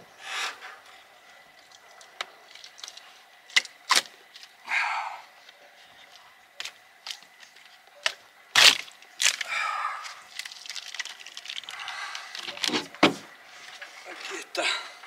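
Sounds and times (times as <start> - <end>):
loud crack: 8.5 - 9.5.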